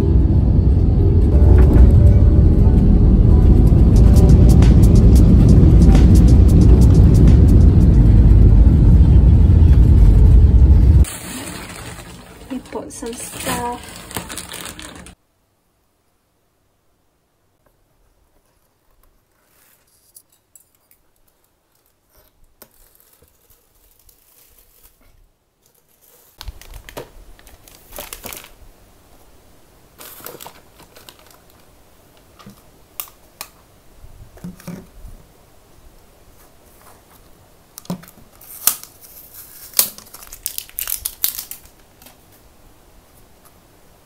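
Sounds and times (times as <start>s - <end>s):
plastic bags rustling: 11.0s - 15.2s, 21.3s - 28.7s, 29.9s - 32.6s, 37.9s - 42.5s.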